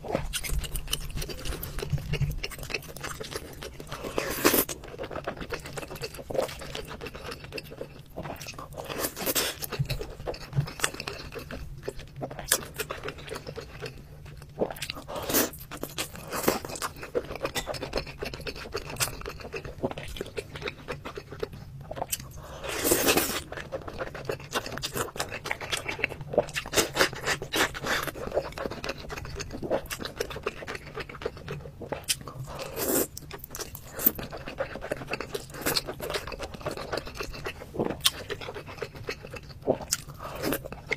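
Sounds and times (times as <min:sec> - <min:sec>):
wet chewing: 0:00.0 - 0:40.9.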